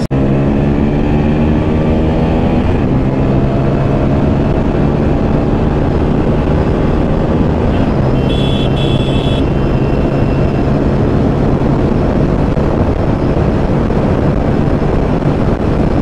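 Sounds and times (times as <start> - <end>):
motorcycle engine drone: 0.0 - 16.0
wind rushing: 0.2 - 16.0.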